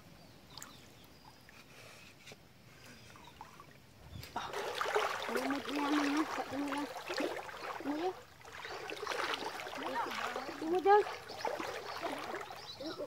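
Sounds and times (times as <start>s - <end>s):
water splashing from wading: 3.2s - 13.0s.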